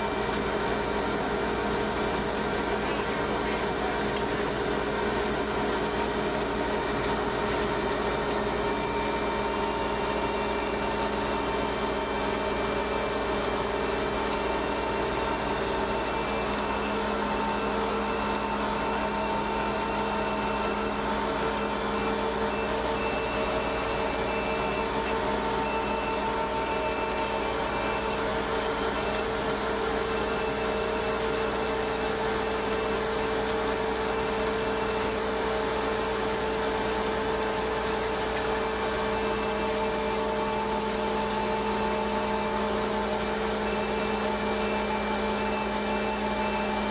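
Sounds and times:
hydraulic auger humming: 0.0 - 46.9.

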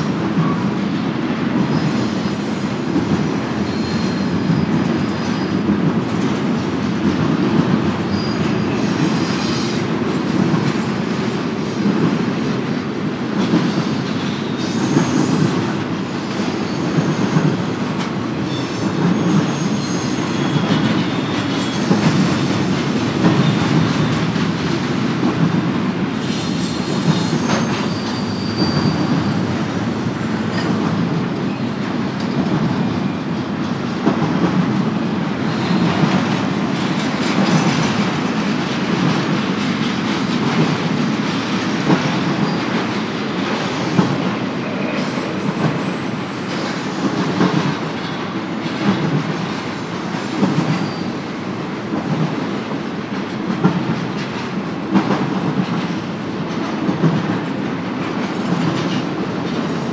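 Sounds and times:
train wheels rumbling on rail: 0.0 - 59.9
rail joint clicks: 0.1 - 59.9
high-pitched wheel squeals: 18.5 - 23.6, 26.4 - 29.4.

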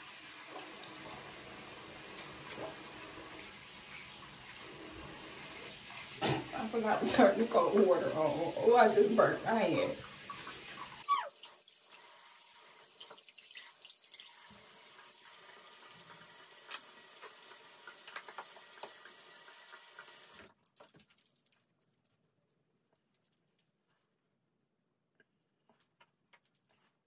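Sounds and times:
sink tap running: 0.0 - 20.5.

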